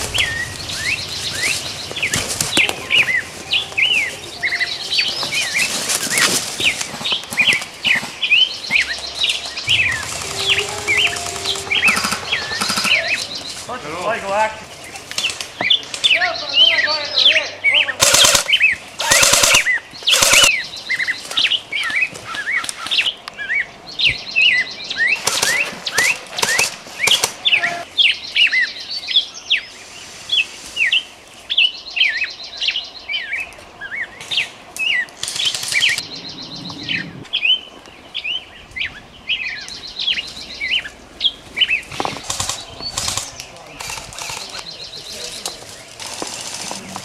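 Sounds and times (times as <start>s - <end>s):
airsoft rifles firing bursts: 18.0s - 20.6s
small birds chirping: 30.8s - 47.0s.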